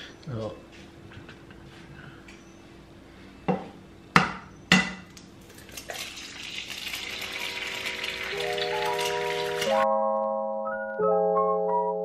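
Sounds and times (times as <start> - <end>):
egg sizzling in hot pan: 5.5 - 9.8.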